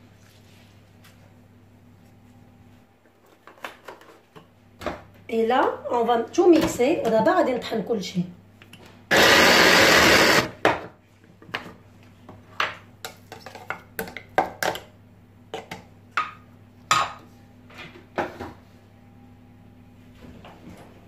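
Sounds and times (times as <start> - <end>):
electric chopper motor: 9.1 - 10.5.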